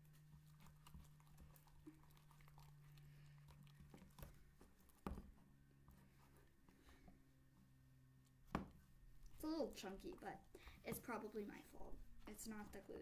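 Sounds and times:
spatula stirring sticky slime: 0:00.0 - 0:06.5, 0:09.2 - 0:13.0
tap on plastic tub: 0:05.0 - 0:05.3, 0:08.5 - 0:08.8.

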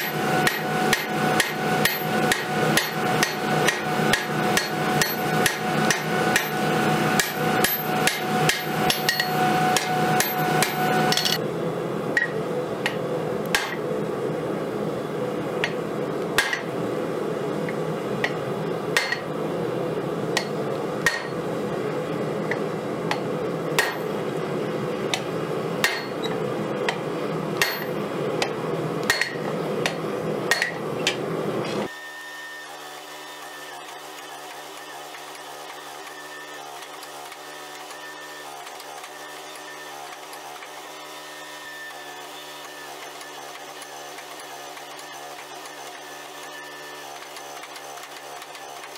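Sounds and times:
hammer striking blade on anvil: 0:00.0 - 0:06.6, 0:07.2 - 0:11.4, 0:12.2 - 0:13.8, 0:16.4 - 0:16.7, 0:19.0 - 0:19.3, 0:20.4 - 0:21.4, 0:23.8 - 0:24.1, 0:25.8 - 0:27.0, 0:27.6 - 0:31.2.

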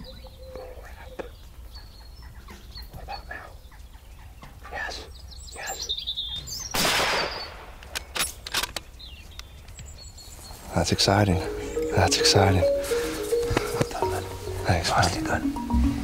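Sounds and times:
faint bird chirps: 0:00.0 - 0:07.6
rifle shot: 0:06.8 - 0:08.3
sharp clicks: 0:06.8 - 0:09.8.

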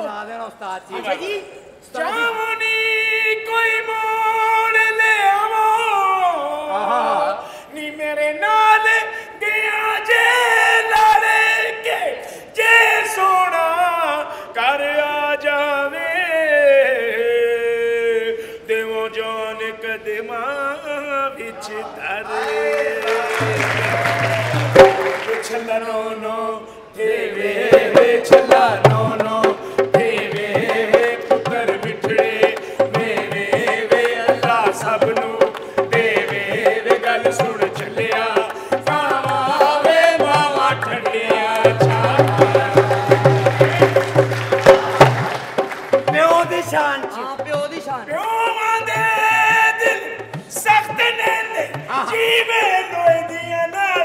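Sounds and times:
lower voice singing: 0:14.6 - 0:45.2
tabla beats: 0:23.2 - 0:25.7, 0:27.6 - 0:54.0
man singing long held notes: 0:23.3 - 0:45.1
sharp drum strokes: 0:23.4 - 0:25.5, 0:27.7 - 0:51.9.

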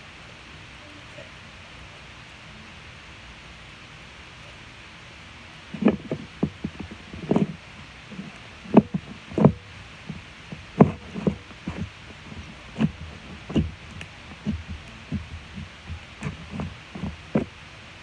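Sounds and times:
slime squelching: 0:05.7 - 0:17.6.

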